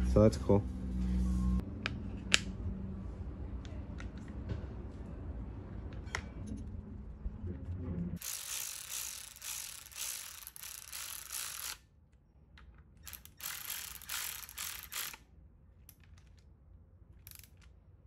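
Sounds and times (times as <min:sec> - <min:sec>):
electric ratchet driving bolts: 0:08.2 - 0:11.8, 0:13.0 - 0:15.2, 0:17.2 - 0:17.6.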